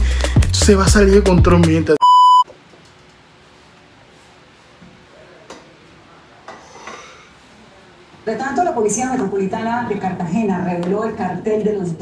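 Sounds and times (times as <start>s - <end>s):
high test-tone beep: 2.0s - 2.4s.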